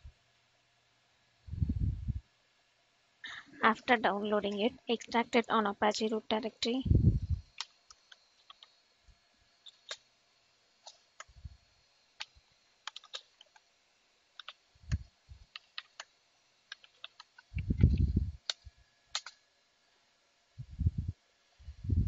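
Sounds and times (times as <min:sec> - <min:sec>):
low muffled thumps: 0:01.5 - 0:02.2, 0:17.6 - 0:18.4
keyboard typing clicks: 0:07.6 - 0:08.7, 0:09.7 - 0:10.0, 0:12.2 - 0:13.6, 0:14.4 - 0:16.1, 0:16.7 - 0:19.4.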